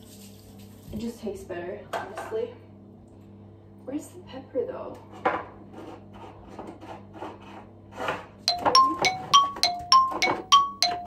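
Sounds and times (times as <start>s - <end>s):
jars knocking and clinking: 8.5s - 11.0s
plucked notes music: 8.5s - 11.0s.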